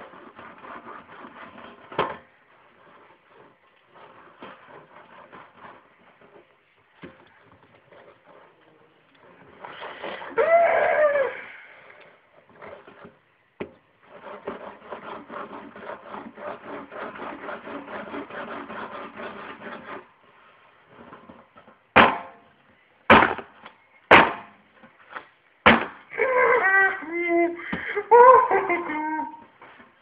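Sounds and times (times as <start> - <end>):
rubbing and scraping: 0.0 - 11.1, 11.8 - 30.0
sharp knocks: 22.0 - 22.5, 23.1 - 24.6, 25.6 - 26.1
high-pitched whining voice: 26.1 - 29.5.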